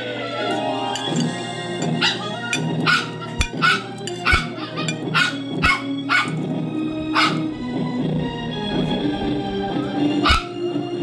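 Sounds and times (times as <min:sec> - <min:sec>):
background music: 0:00.0 - 0:11.0
dog barking: 0:02.0 - 0:06.4, 0:07.1 - 0:07.5, 0:10.2 - 0:10.7.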